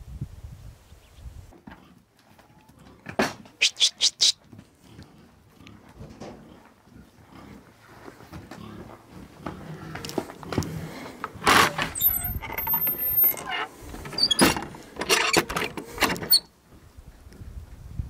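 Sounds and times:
high squeak: 11.8s - 15.4s.

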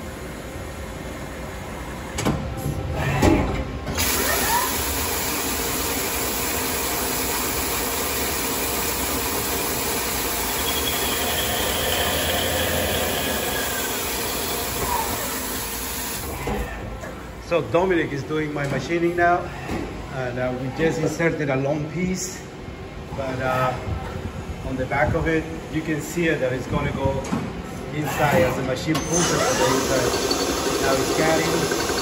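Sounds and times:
spindle whine: 10.0s - 15.6s.

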